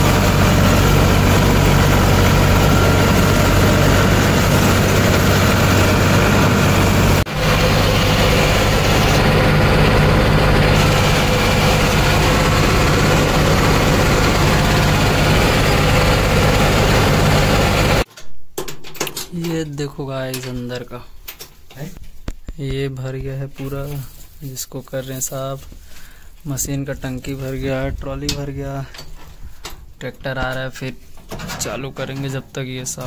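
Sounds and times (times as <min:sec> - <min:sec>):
diesel engine running: 0:00.0 - 0:18.1.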